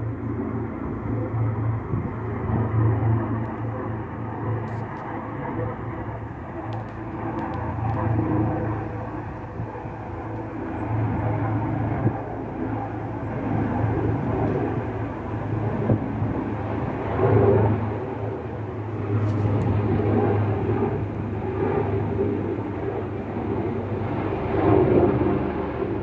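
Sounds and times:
helicopter flying overhead: 0:00.0 - 0:26.0.

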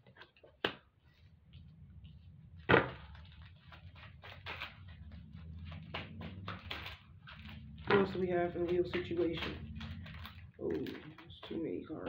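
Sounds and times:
cards slapping: 0:00.1 - 0:00.9, 0:02.6 - 0:11.6
faint low hum: 0:01.0 - 0:12.0
cards flicking and rustling: 0:02.6 - 0:11.6.

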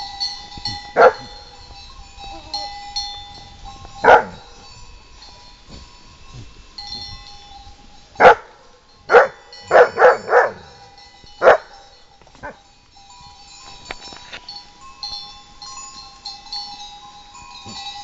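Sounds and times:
dog barking: 0:01.0 - 0:01.3, 0:04.0 - 0:04.5, 0:08.2 - 0:10.8, 0:11.4 - 0:11.8.

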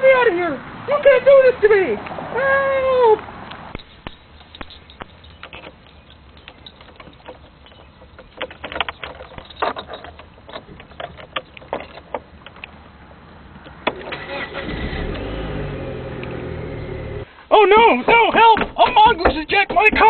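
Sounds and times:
sharp clicks and knocks: 0:03.5 - 0:12.8, 0:18.0 - 0:20.0
car engine starting and running: 0:13.0 - 0:17.3.

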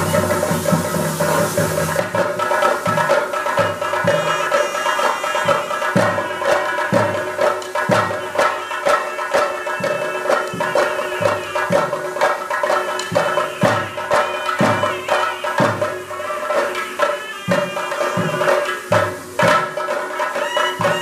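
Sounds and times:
shrill double-reed pipe melody: 0:00.0 - 0:02.1, 0:03.6 - 0:07.3, 0:08.0 - 0:19.0, 0:20.1 - 0:21.0
drums beaten with sticks: 0:00.0 - 0:21.0.

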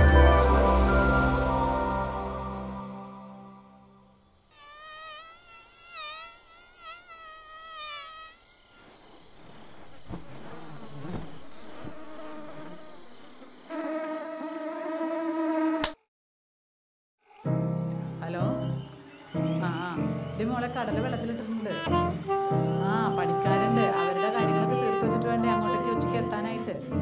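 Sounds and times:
cricket chirps: 0:03.4 - 0:15.8
steady insect buzzing: 0:03.5 - 0:16.0
mosquito whining: 0:04.5 - 0:15.9.

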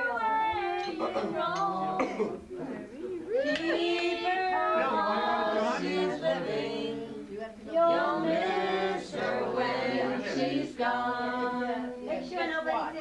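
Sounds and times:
group singing unaccompanied: 0:00.0 - 0:13.0.

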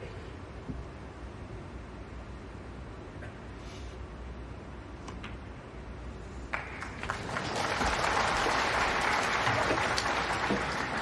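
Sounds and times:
audience applauding: 0:06.5 - 0:11.0.

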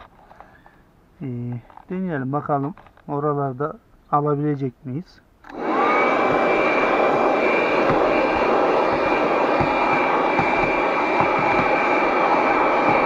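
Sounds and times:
handheld vacuum motor whirring: 0:05.5 - 0:13.0.

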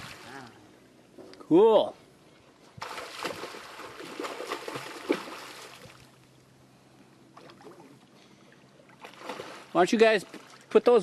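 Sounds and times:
shark thrashing water splashing: 0:02.8 - 0:05.9.

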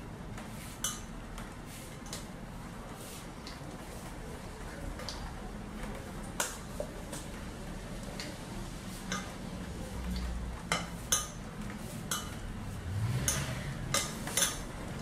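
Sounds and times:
spoon clinking against glass bowl: 0:10.7 - 0:11.4, 0:12.1 - 0:12.4.

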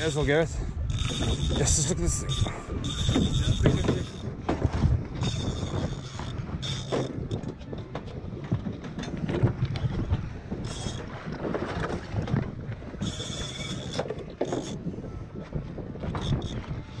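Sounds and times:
fishing reel clicking: 0:00.0 - 0:04.4, 0:05.2 - 0:07.5, 0:09.8 - 0:11.1, 0:13.0 - 0:14.8, 0:16.0 - 0:16.7
boat engine rumble: 0:00.0 - 0:17.0
water against hull: 0:00.0 - 0:17.0
wind buffeting microphone: 0:00.0 - 0:17.0.

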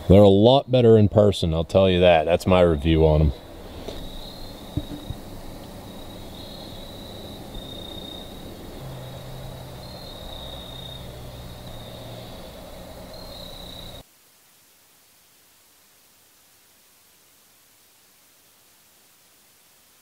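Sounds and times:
night insects trilling: 0:00.0 - 0:14.1
faint low hum: 0:00.0 - 0:20.0.

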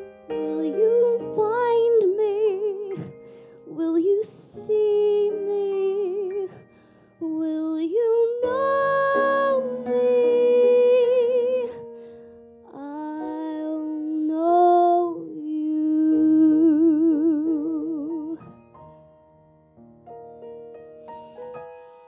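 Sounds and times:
piano: 0:00.0 - 0:22.0
woman singing ballad: 0:00.3 - 0:12.0, 0:12.7 - 0:18.5.

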